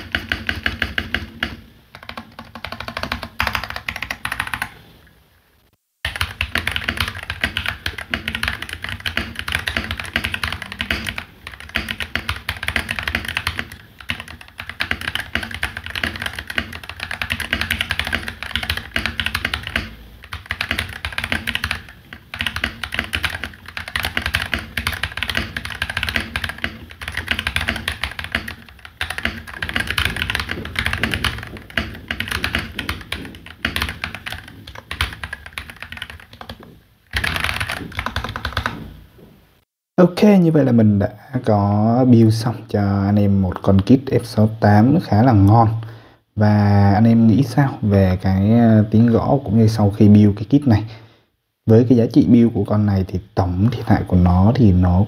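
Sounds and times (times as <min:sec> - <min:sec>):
mechanical keyboard typing clacks: 0:00.0 - 0:04.7, 0:06.0 - 0:38.8.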